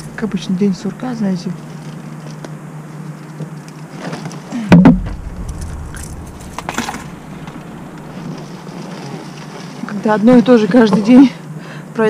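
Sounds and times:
loud thump: 0:04.7 - 0:08.8
low rumble: 0:04.8 - 0:09.4
car engine and road hum: 0:04.9 - 0:09.6.

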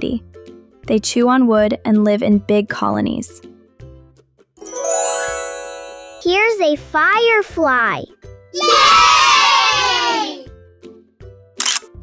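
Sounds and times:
children cheering: 0:08.6 - 0:10.5.

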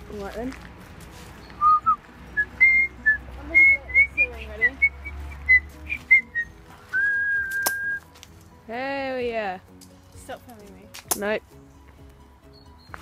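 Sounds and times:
person whistling: 0:01.6 - 0:08.0
sharp click: 0:07.5 - 0:07.9.

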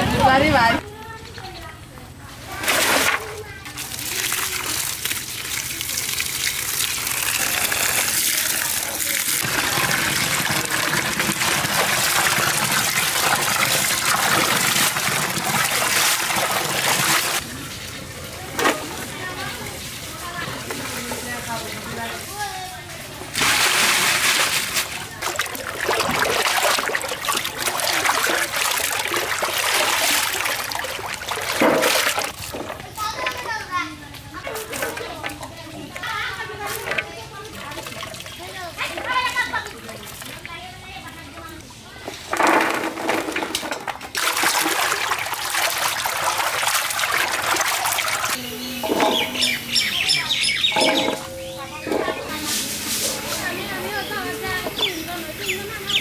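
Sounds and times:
birds chirping: 0:00.5 - 0:02.0, 0:48.4 - 0:52.5, 0:53.2 - 0:56.0
vegetables washed by hand in water: 0:02.2 - 0:56.0
water splashing in a metal pot: 0:02.5 - 0:21.9, 0:23.2 - 0:41.6, 0:42.2 - 0:52.4
hands sloshing in water: 0:23.4 - 0:33.4.

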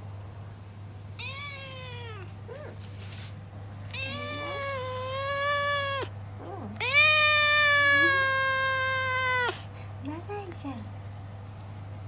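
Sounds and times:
cat meowing: 0:01.2 - 0:02.4, 0:03.9 - 0:06.1, 0:06.8 - 0:09.6.

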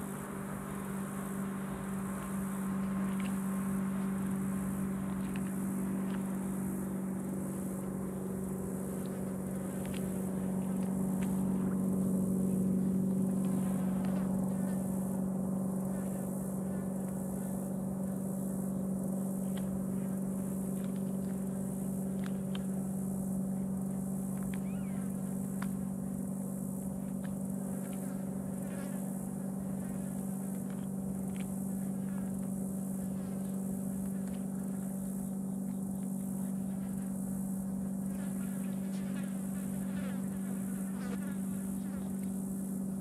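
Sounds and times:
steady low hum: 0:00.0 - 0:43.0
faint clicks: 0:02.2 - 0:06.6, 0:24.2 - 0:25.8.

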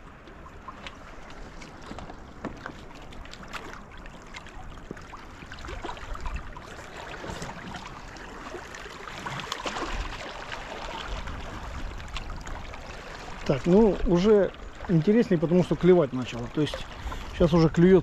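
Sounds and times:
sea water splashing on rocks: 0:00.8 - 0:18.0.

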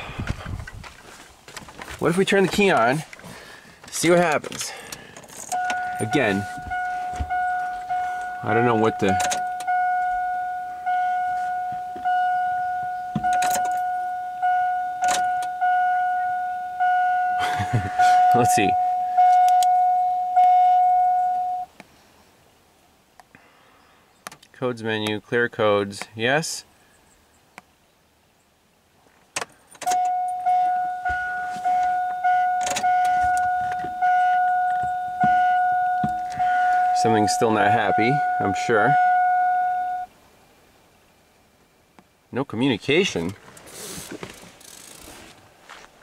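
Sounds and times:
electronic warning ding: 0:05.6 - 0:21.7, 0:29.9 - 0:40.1.

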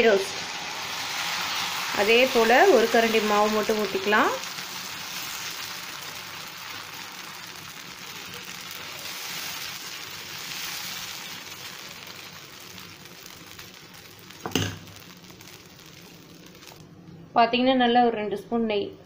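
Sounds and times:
batter sizzling on a griddle: 0:00.0 - 0:16.8.

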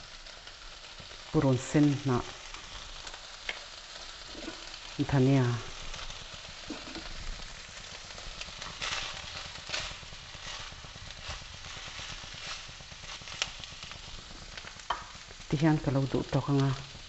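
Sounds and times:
food sizzling in a wok: 0:00.0 - 0:17.0
spatula knocking and scraping a pan: 0:04.3 - 0:04.8, 0:06.6 - 0:07.2, 0:07.8 - 0:14.0, 0:14.6 - 0:15.2.

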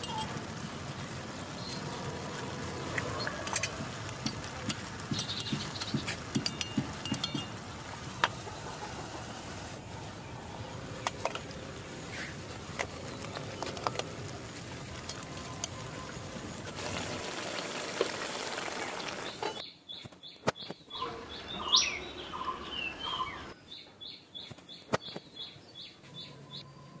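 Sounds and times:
small birds chirping: 0:00.0 - 0:09.0, 0:18.9 - 0:27.0
steady hiss: 0:00.0 - 0:19.5.

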